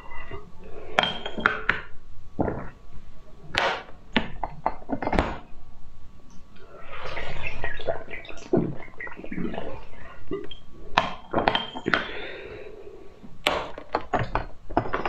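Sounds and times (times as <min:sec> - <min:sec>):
test tubes clinking: 0:13.9 - 0:15.0.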